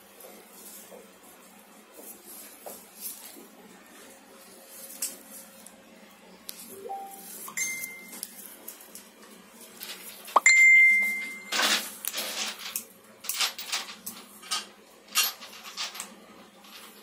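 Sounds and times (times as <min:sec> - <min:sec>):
rustles and light knocks: 0:00.1 - 0:05.8
glass clink ringing: 0:07.0 - 0:08.2, 0:10.4 - 0:11.6.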